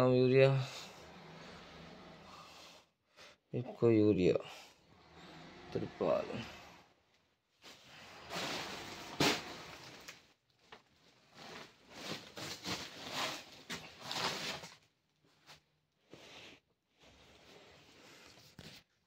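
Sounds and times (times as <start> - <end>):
rustling and scuffing: 11.2 - 15.6.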